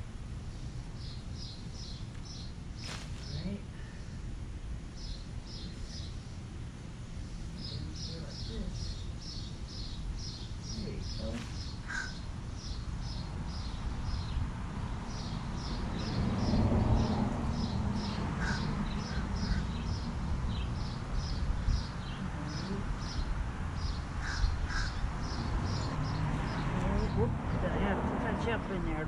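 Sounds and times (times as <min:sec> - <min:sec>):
low outdoor rumble: 0:00.0 - 0:29.0
birds chirping: 0:00.5 - 0:06.5, 0:07.2 - 0:29.0
lower bird calls: 0:07.5 - 0:14.4, 0:15.1 - 0:27.2.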